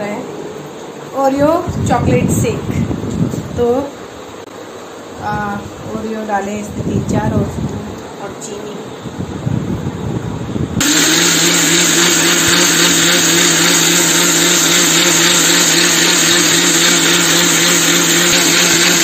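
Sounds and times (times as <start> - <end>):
mixer grinder running: 10.8 - 19.0.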